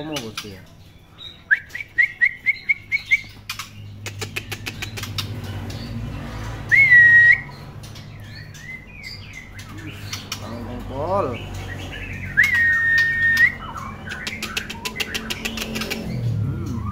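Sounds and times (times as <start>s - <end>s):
bird chirps: 0.0s - 16.9s
bird rising whistle: 6.7s - 7.5s, 12.4s - 13.6s
sharp clicks: 14.1s - 16.2s.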